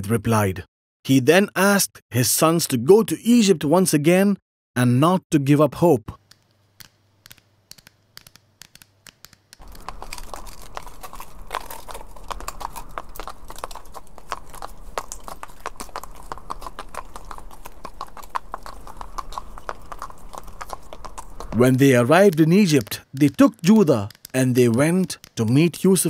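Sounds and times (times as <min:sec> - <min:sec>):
hooves clattering: 0:09.6 - 0:26.0.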